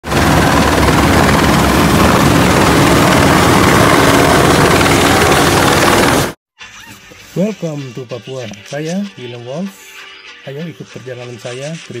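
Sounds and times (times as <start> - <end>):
helicopter hovering: 0.0 - 6.4.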